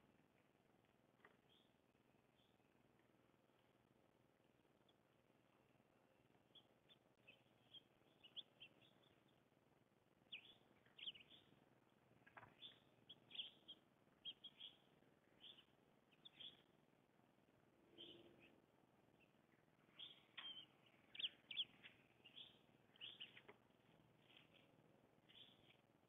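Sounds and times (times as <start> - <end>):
small songbirds chirping: 0.0 - 26.0.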